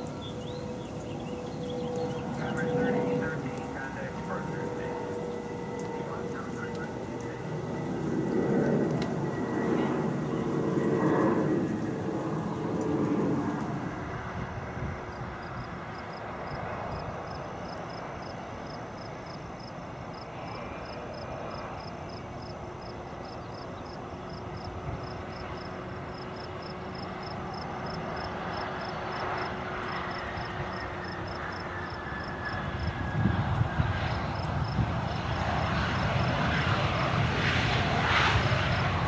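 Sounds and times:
falling engine whine: 0:00.0 - 0:23.1
distant jet engines: 0:00.0 - 0:39.0.

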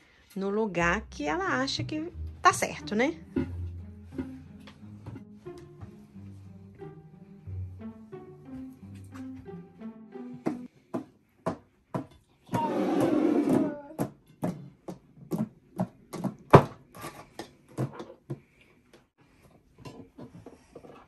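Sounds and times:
bowl scraping on tabletop: 0:03.3 - 0:04.4
ceramic bowls knocking and clinking: 0:14.0 - 0:16.7.

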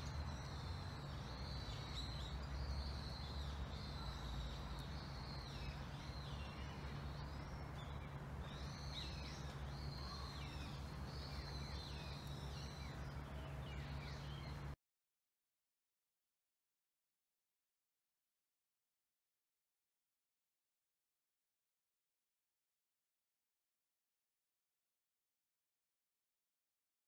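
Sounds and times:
low background rumble: 0:00.0 - 0:14.8
small birds chirping: 0:00.0 - 0:14.8.

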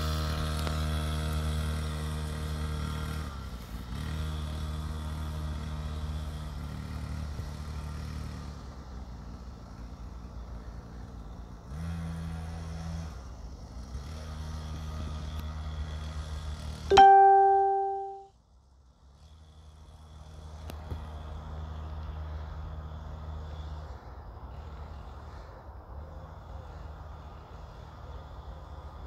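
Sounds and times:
dirt bike engine: 0:00.0 - 0:18.3.

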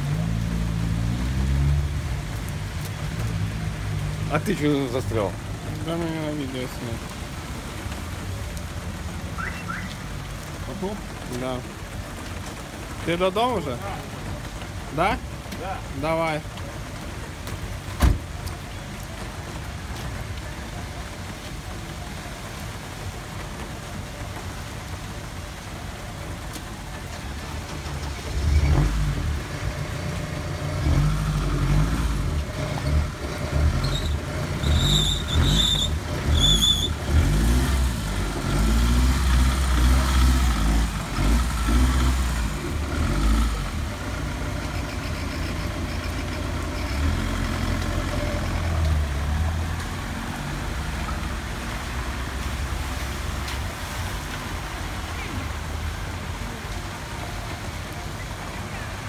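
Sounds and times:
rain on a flooded street: 0:00.0 - 0:59.0
high-pitched squeaks: 0:33.8 - 0:36.9.

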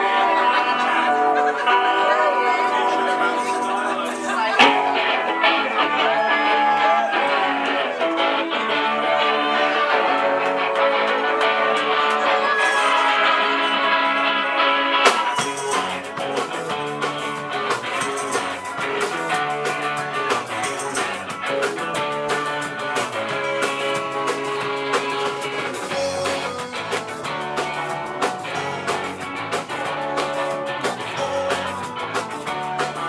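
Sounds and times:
electric guitars strumming: 0:00.0 - 0:33.0
steady drum beat: 0:15.0 - 0:33.0.

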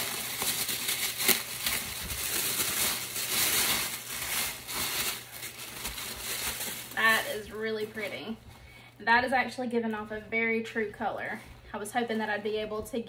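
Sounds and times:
tissue paper rustling and crinkling: 0:00.0 - 0:08.4.

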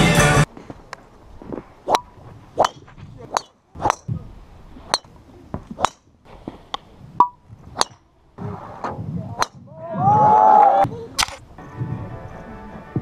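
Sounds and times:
golf clubs striking balls: 0:01.8 - 0:09.7.

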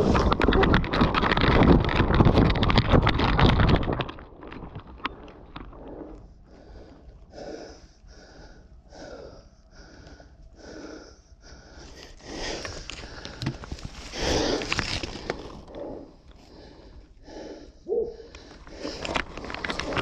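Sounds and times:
corn stalks brushing and crackling: 0:00.0 - 0:05.8, 0:12.4 - 0:16.5, 0:18.6 - 0:20.0
heavy breathing: 0:05.7 - 0:20.0.

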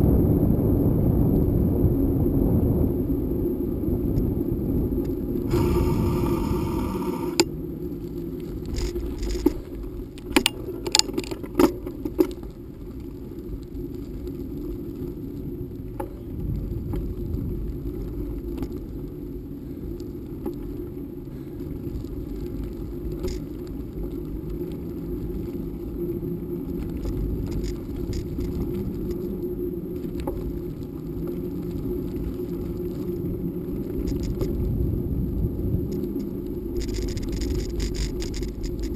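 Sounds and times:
bicycle tyre rumble: 0:00.0 - 0:38.9
wind noise on microphone: 0:00.0 - 0:38.9
bike clicking and rattling: 0:05.0 - 0:34.8, 0:35.8 - 0:38.9
buzzing hiss: 0:05.5 - 0:07.5.

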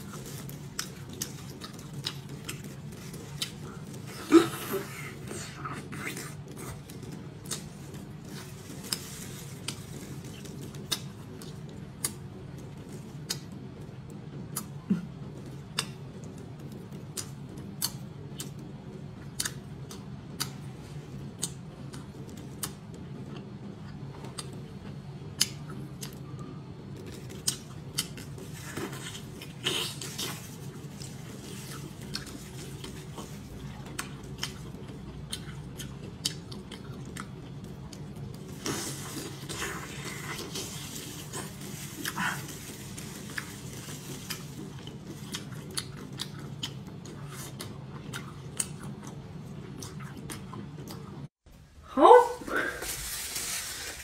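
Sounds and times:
faint low hum: 0:00.0 - 0:54.0
wet chewing with smacking clicks: 0:00.7 - 0:04.0, 0:08.8 - 0:26.3, 0:27.0 - 0:28.5, 0:31.0 - 0:38.7, 0:43.2 - 0:51.3.

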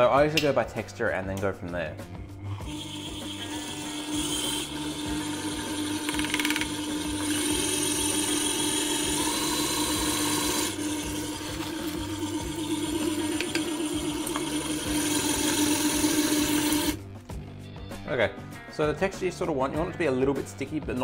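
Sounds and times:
stand mixer motor humming: 0:02.6 - 0:17.0.

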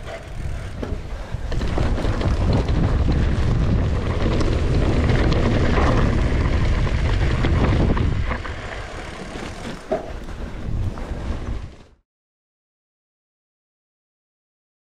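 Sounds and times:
wind buffeting microphone: 0:00.0 - 0:11.9
bike rattling: 0:00.0 - 0:12.0
bike tyre noise on dirt: 0:00.0 - 0:12.0.

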